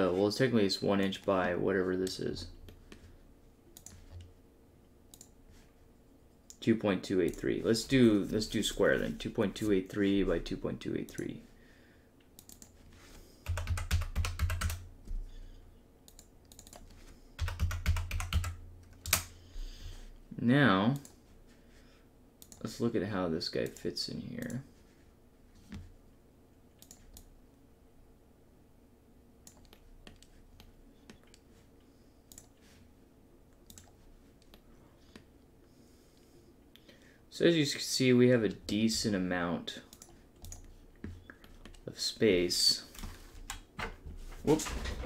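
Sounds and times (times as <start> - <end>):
low room hum: 0.0 - 45.0
computer mouse clicking: 3.8 - 4.3, 5.1 - 5.3, 12.4 - 12.7, 16.1 - 19.3, 26.8 - 27.3, 29.4 - 31.4, 32.3 - 32.5, 33.6 - 34.6, 39.9 - 41.8
typing on computer keyboard: 13.4 - 14.8, 16.1 - 16.8, 17.4 - 19.3.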